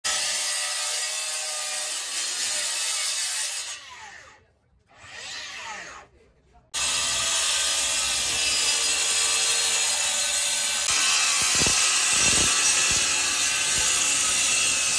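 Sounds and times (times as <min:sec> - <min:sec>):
concrete saw grinding whine: 0:06.8 - 0:14.9.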